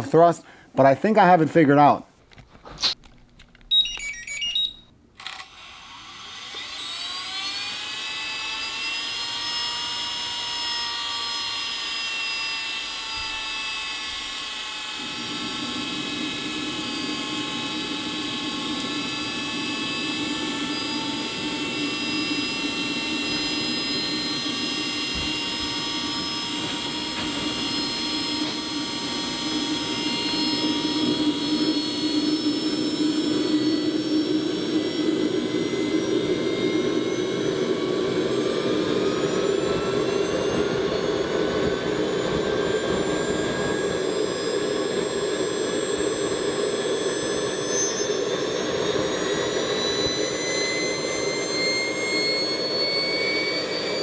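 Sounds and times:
turbine engine whine: 0:02.8 - 0:54.0
low rushing noise: 0:15.0 - 0:44.0.

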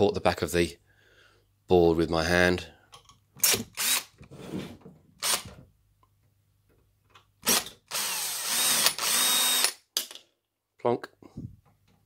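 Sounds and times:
cordless drill motor: 0:03.4 - 0:04.1, 0:07.5 - 0:09.8.

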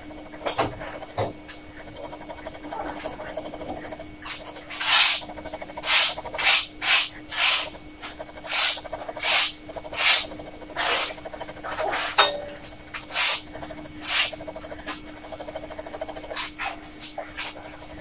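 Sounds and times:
pen nib scratching on paper: 0:00.8 - 0:12.2, 0:12.9 - 0:18.0.

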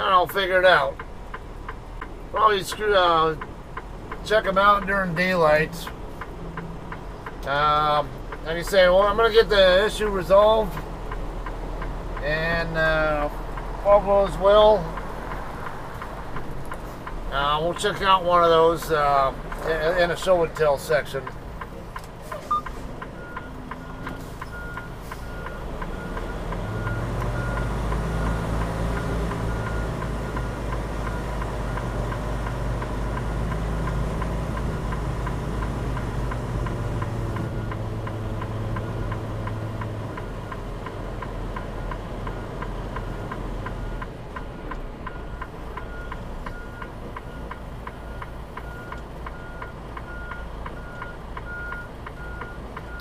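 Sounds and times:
diesel truck engine droning: 0:00.0 - 0:53.0
light regular ticking: 0:00.2 - 0:53.0
faint high beep: 0:22.4 - 0:25.6.

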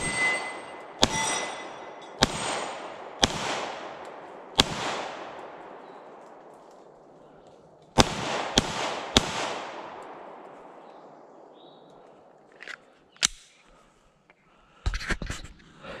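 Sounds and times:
pistol shots echoing: 0:00.0 - 0:11.8
small handling clicks: 0:12.5 - 0:13.6.

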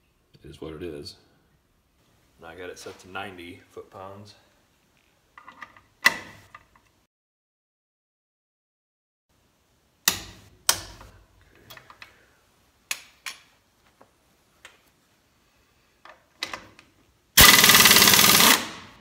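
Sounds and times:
air impact wrench hammering: 0:17.4 - 0:19.0.

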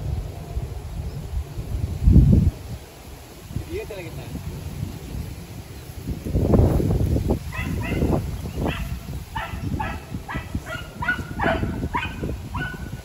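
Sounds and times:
dog yelping barks: 0:07.5 - 0:13.0.

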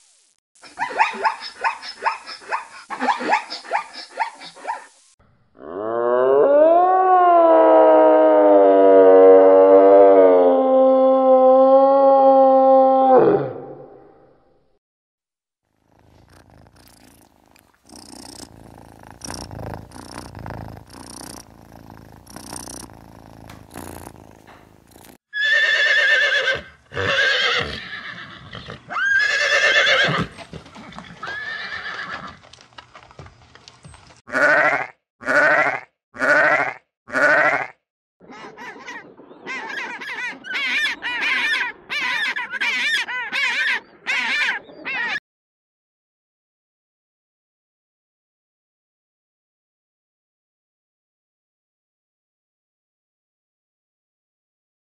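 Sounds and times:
horse neighing: 0:25.3 - 0:32.4, 0:34.3 - 0:37.7
penguin braying: 0:38.3 - 0:45.2.

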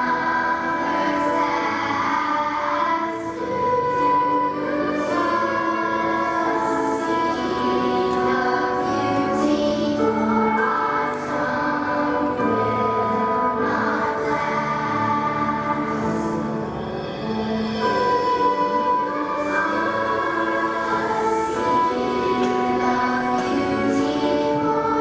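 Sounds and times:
children's choir singing: 0:00.0 - 0:25.0.

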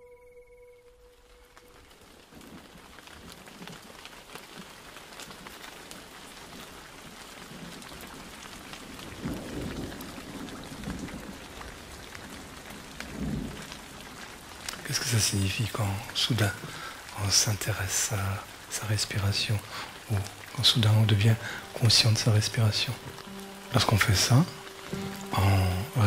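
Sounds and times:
rain falling: 0:00.9 - 0:26.0
low rumbles of thunder: 0:07.5 - 0:14.6.

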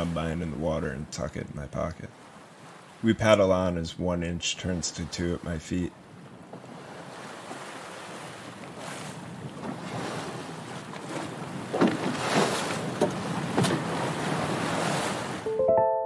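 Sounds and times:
sea waves: 0:00.0 - 0:15.6
wind: 0:00.0 - 0:15.6
paddle splashes in water: 0:06.1 - 0:15.4
plucked-string music: 0:15.5 - 0:16.0.

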